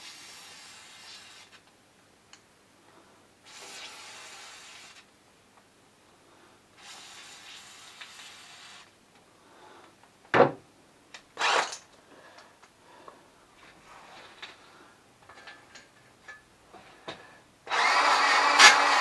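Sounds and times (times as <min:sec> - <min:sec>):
aerosol spray hissing: 0:00.0 - 0:01.6, 0:03.5 - 0:05.0, 0:06.8 - 0:08.9.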